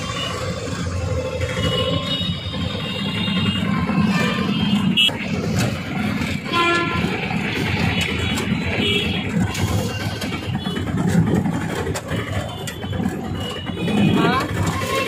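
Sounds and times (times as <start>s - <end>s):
auto-rickshaw engine running: 0.0s - 15.0s
traffic rumble: 0.0s - 15.0s
vehicle horns honking: 1.4s - 5.4s, 6.4s - 11.4s, 12.2s - 15.0s.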